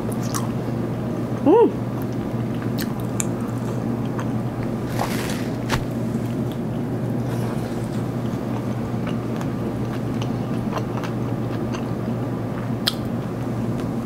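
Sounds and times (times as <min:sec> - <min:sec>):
person chewing crisp food: 0:02.5 - 0:06.6, 0:07.2 - 0:12.0.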